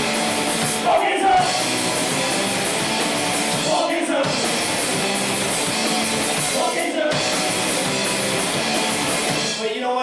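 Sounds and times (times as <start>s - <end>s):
distorted electric guitars: 0.0s - 9.7s
drum kit: 0.0s - 9.8s
shouted chorus vocals: 0.8s - 1.6s, 3.6s - 4.4s, 6.4s - 7.4s.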